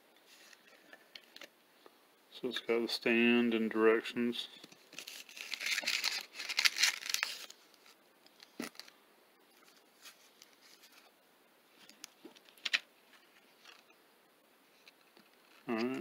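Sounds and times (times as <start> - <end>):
packaging rustling: 4.8 - 8.9.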